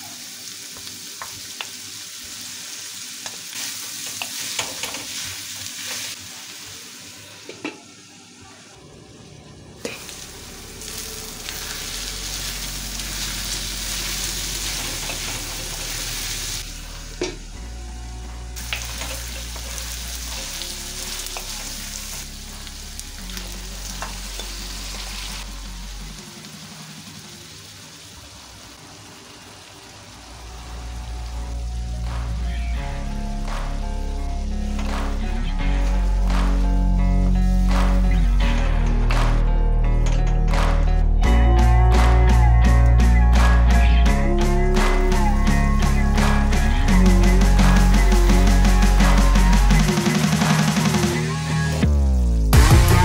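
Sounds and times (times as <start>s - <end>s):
chicken sizzling in hot oil: 0.0s - 7.8s, 9.8s - 17.3s, 18.6s - 31.6s
soft background music: 9.2s - 27.9s.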